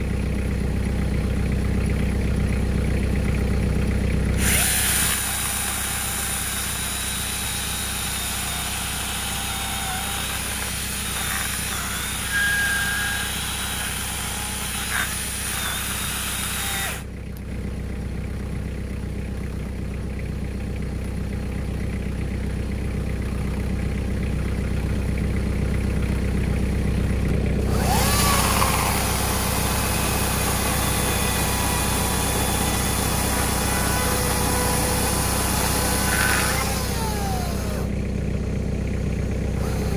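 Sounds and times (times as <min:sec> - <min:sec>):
grinder chainsaw cutting wood: 0:04.4 - 0:17.1, 0:27.5 - 0:37.9, 0:39.6 - 0:39.9.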